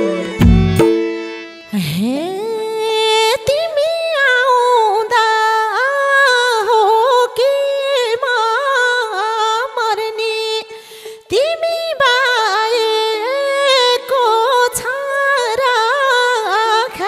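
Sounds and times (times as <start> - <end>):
person singing ornamented melody: 0.0 - 10.7.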